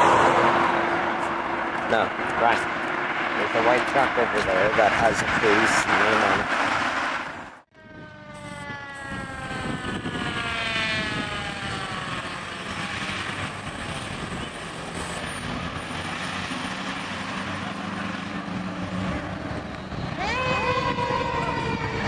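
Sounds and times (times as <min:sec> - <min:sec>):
truck engine and road noise: 0:00.0 - 0:22.0
mechanical siren winding down: 0:07.4 - 0:16.1, 0:19.2 - 0:22.0.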